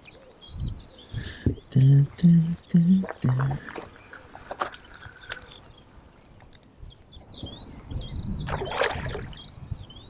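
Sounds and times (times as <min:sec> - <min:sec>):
bird singing whistled notes: 0:06.7 - 0:10.0.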